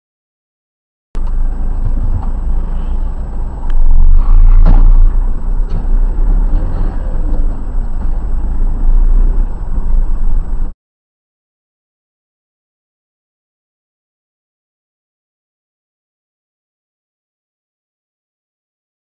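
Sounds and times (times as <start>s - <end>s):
car driving rumble: 1.2s - 10.8s.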